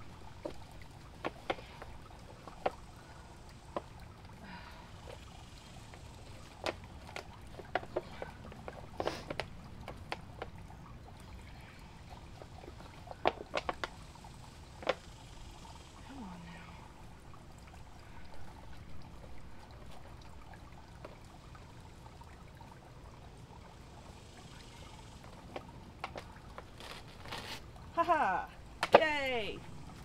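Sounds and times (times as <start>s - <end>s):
plant pot being handled: 25.5s - 29.4s
roots snapping and crackling: 26.0s - 27.7s.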